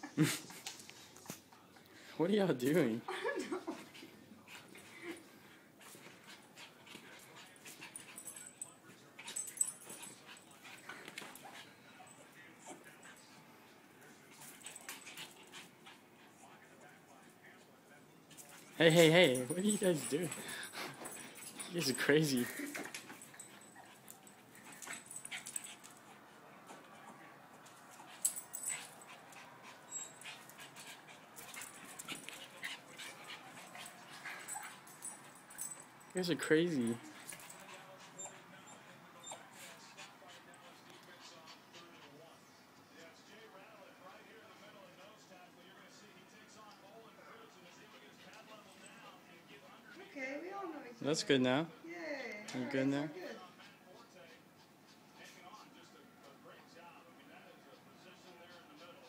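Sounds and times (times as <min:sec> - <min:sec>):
faint dog noises: 0:03.5 - 0:59.0
small dogs scuffling: 0:18.3 - 0:39.6
dog whimpers and yips: 0:38.1 - 0:39.5.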